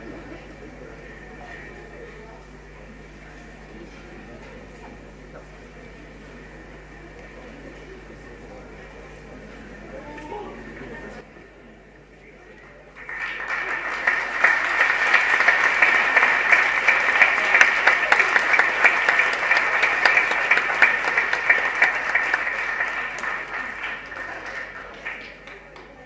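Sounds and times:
audience applauding: 0:12.8 - 0:26.0.

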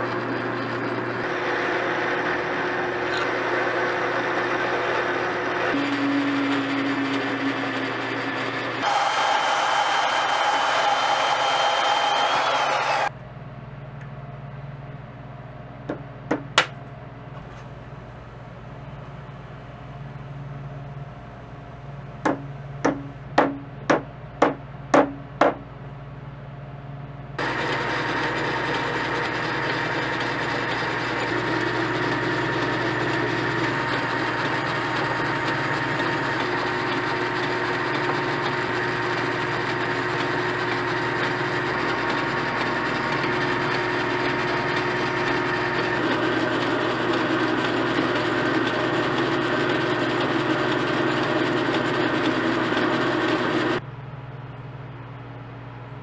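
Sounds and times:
lathe running: 0:00.0 - 0:13.1, 0:27.4 - 0:53.8
sanding spinning part: 0:00.0 - 0:13.1, 0:27.4 - 0:53.8.

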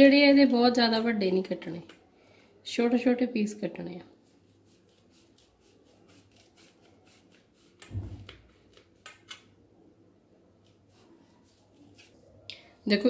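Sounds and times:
low thump: 0:07.9 - 0:08.5.

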